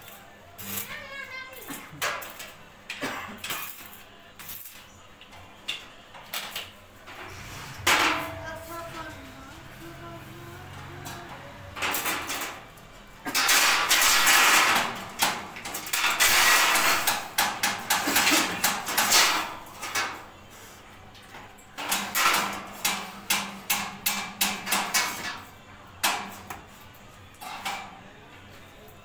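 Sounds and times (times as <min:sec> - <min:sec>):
steel bars clattering and scraping: 0:05.7 - 0:09.2, 0:11.0 - 0:20.2, 0:21.8 - 0:26.5, 0:27.4 - 0:28.0.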